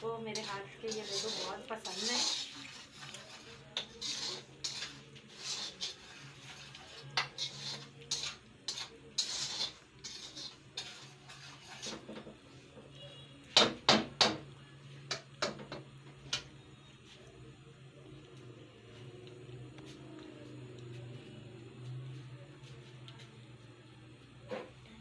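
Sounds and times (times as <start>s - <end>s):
metal spoon stirring dry semolina: 0.0s - 13.6s.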